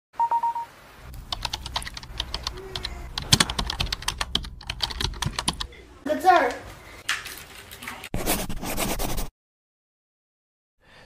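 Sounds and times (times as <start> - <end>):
short beep: 0.2 - 0.7
keyboard typing: 1.3 - 5.7.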